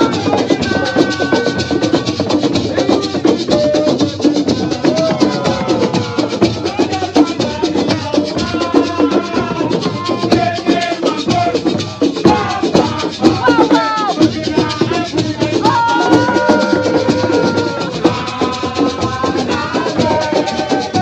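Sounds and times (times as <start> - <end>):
person singing into microphone: 0.0 - 21.0
shakers and drums rattling: 0.0 - 21.0.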